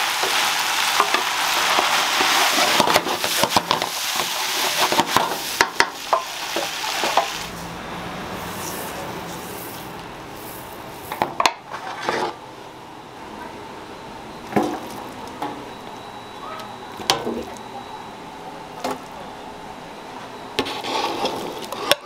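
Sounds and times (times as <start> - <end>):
food sizzling in a wok: 0.0 - 11.2
wooden spatula scraping pan: 1.0 - 7.3, 8.4 - 12.4, 20.6 - 22.0.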